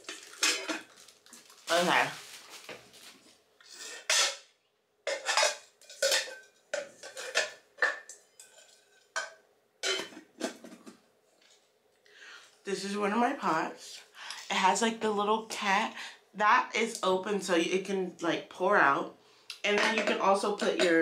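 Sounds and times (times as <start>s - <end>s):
pot lid clinking: 5.1s - 10.8s.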